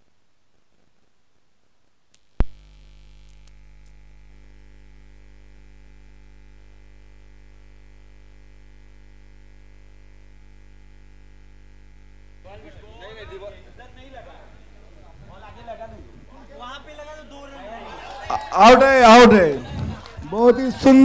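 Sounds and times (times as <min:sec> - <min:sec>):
mains hum and buzz: 0:00.0 - 0:21.0
sharp electrical pop: 0:02.2 - 0:04.1.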